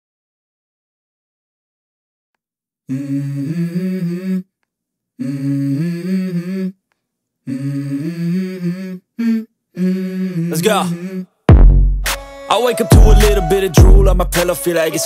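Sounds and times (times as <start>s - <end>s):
person humming a melody: 2.9s - 4.5s, 7.5s - 11.3s, 12.5s - 15.0s.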